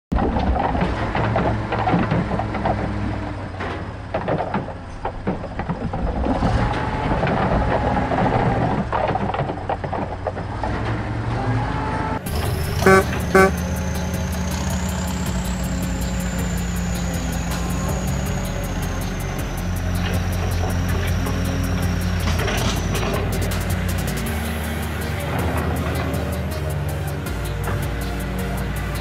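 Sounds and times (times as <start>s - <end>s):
engine running: 0.6s - 29.0s
truck horn blowing: 12.3s - 14.3s.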